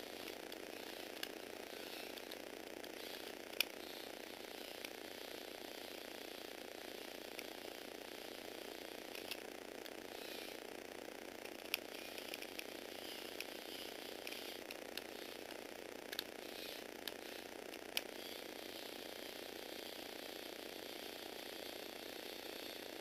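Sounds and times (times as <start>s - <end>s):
small electric motor whirring: 0.0s - 23.0s
sharp mechanism clicks: 0.2s - 3.8s, 8.9s - 10.6s, 11.4s - 19.0s.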